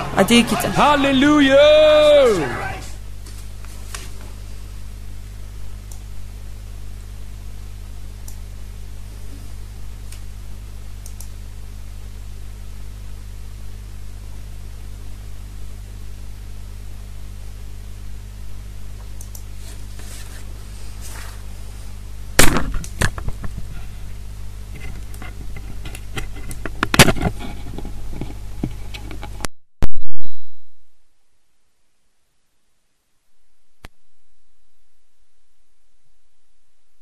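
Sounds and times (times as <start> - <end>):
electrical hum and hiss: 0.0 - 37.0.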